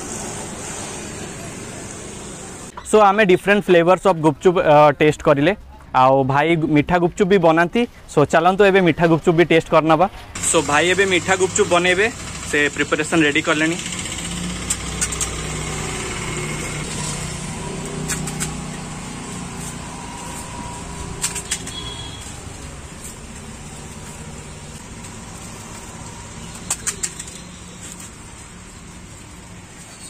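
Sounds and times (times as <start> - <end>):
sharp clicks: 26.4 - 28.1.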